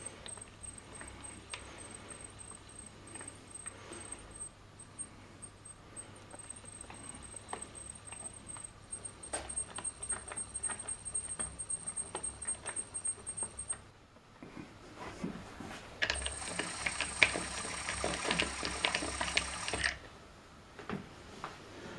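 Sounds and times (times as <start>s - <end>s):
electric motor whine: 16.2s - 20.0s.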